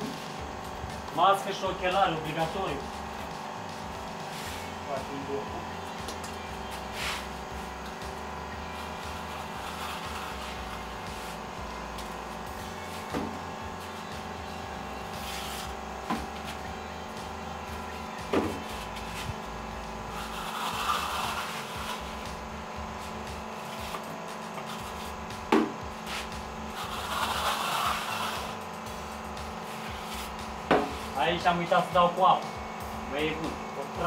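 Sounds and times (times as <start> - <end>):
steady background hum: 0.0 - 34.0
trowel scraping plaster on wall: 20.1 - 22.2, 26.1 - 28.6
tool knocking: 30.7 - 31.0.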